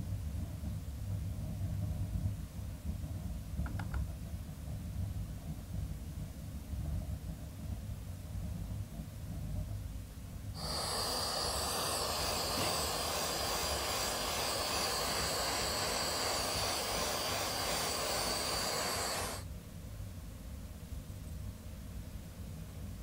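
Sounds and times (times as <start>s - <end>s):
gas torch hissing: 10.6s - 19.5s.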